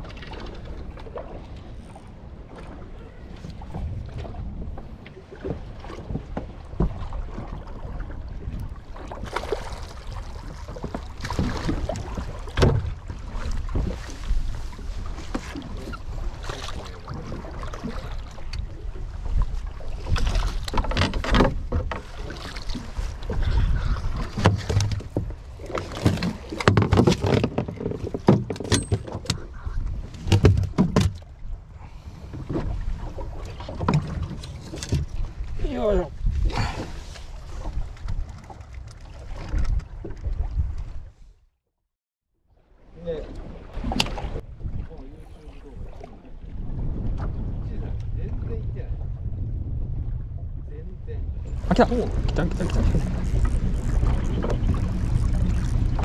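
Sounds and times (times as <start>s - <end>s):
wind on microphone: 0.0s - 28.5s, 29.2s - 41.3s, 43.2s - 56.0s
water slapping boat hull: 0.0s - 41.2s, 42.5s - 56.0s
splashes and knocks: 3.4s - 18.7s, 19.3s - 31.4s, 32.3s - 35.4s, 36.5s - 40.9s, 43.3s - 44.4s.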